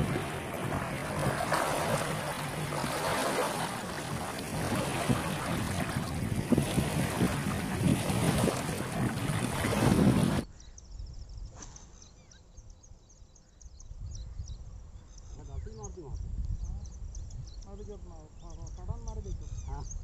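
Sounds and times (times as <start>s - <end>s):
small waves lapping on stony shore: 0.0s - 10.4s
wind noise on microphone: 0.0s - 11.9s, 13.7s - 20.0s.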